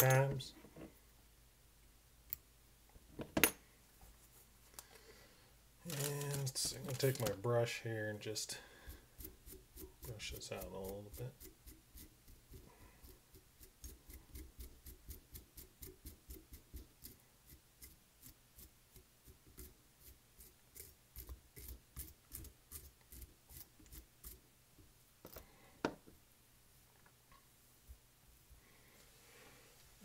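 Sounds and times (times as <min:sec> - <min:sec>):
brush scratching through fibres: 0:08.2 - 0:15.9, 0:16.5 - 0:24.4.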